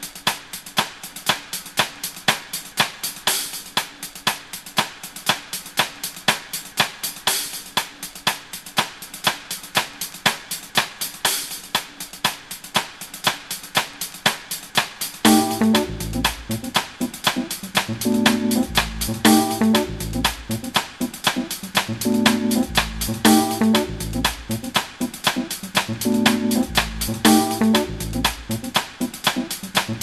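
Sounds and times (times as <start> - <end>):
snare and hi-hat beat: 0.0 - 30.0
pitched instrument: 15.3 - 28.7.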